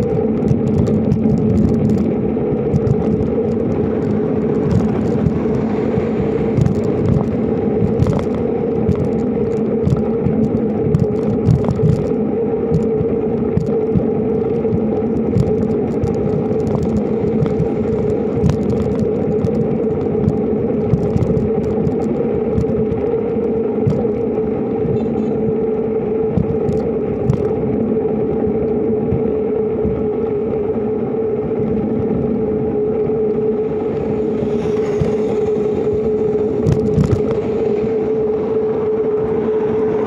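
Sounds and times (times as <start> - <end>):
small rattles and clicks: 0.0 - 27.7, 34.7 - 37.6
bicycle tyre rolling on concrete: 0.0 - 40.0.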